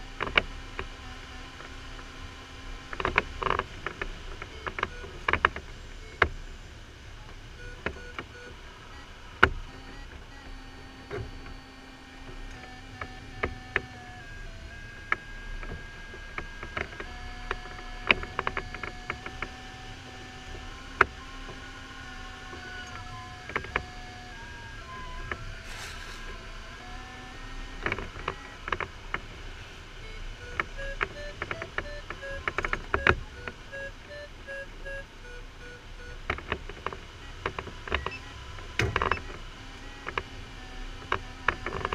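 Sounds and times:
electronic variometer tone: 0:07.5 - 0:29.2, 0:29.9 - 0:41.9
short quick beeps: 0:25.6 - 0:26.4.

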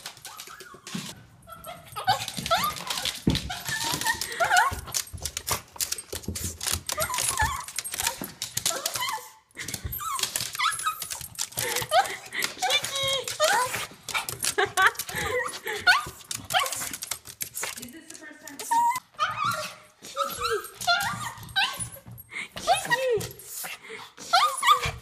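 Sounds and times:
dog whining and squealing: 0:00.1 - 0:05.0, 0:06.8 - 0:13.9, 0:18.6 - 0:23.6, 0:24.2 - 0:25.0.

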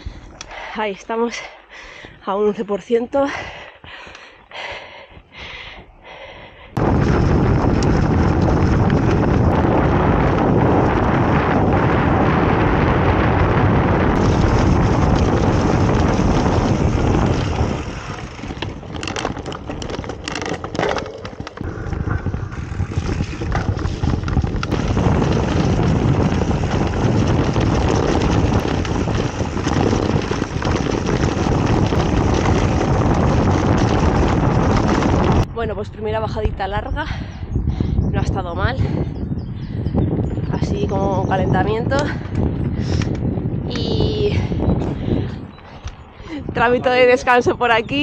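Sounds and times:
wind buffeting microphone: 0:00.0 - 0:48.0
bike tyres rolling on dirt: 0:06.8 - 0:35.5, 0:38.8 - 0:48.0
bike knocks and rattles: 0:14.1 - 0:35.5.

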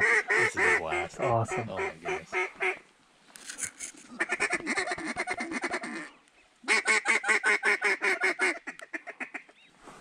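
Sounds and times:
duck quacking: 0:00.0 - 0:02.8, 0:04.1 - 0:06.1.

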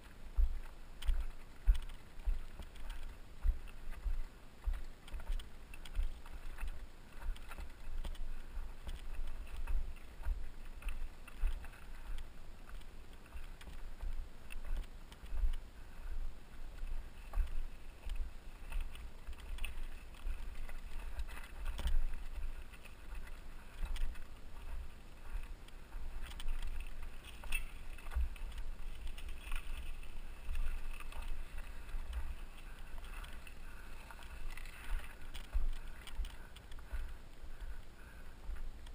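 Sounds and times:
bike rattling: 0:00.0 - 0:38.9
tyres crunching on gravel: 0:16.8 - 0:37.2.

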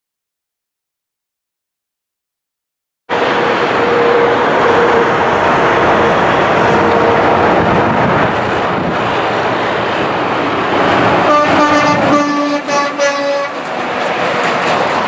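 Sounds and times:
loud vehicle noise: 0:03.1 - 0:15.0.

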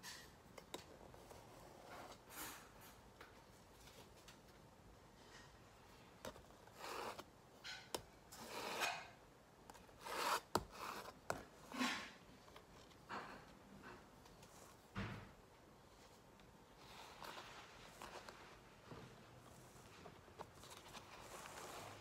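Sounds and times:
palette knife scraping paint: 0:06.3 - 0:13.0, 0:19.4 - 0:22.0.

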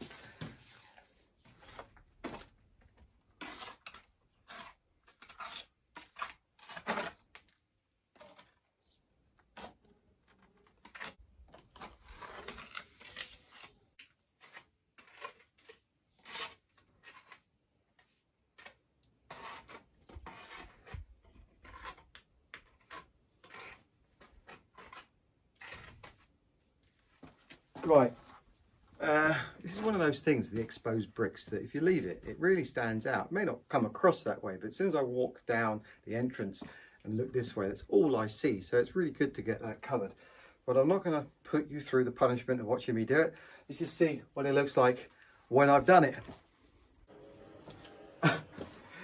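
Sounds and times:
steel trowel scraping render: 0:03.2 - 0:07.4, 0:11.8 - 0:26.3.

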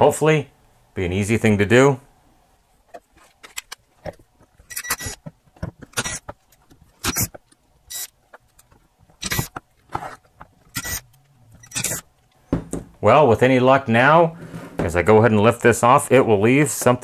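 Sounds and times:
power driver whirring: 0:09.2 - 0:12.1.

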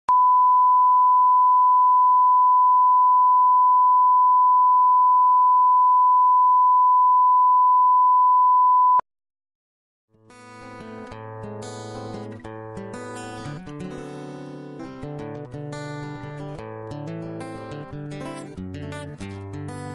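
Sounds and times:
strummed guitar music: 0:10.2 - 0:19.9.

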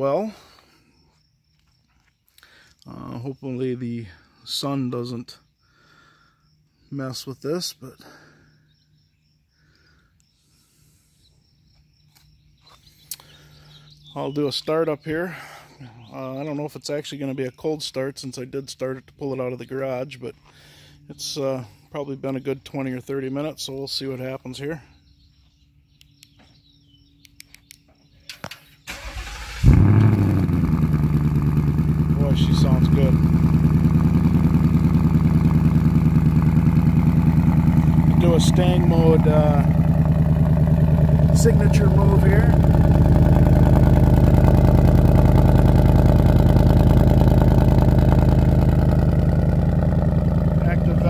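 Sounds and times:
engine catching with loud burst: 0:28.9 - 0:51.0.

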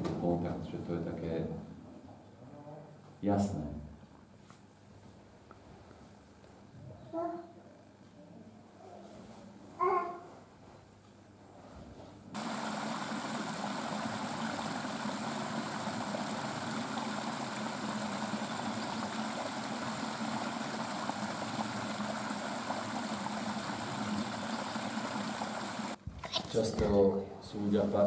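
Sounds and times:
stream rushing over stones: 0:12.4 - 0:26.0.

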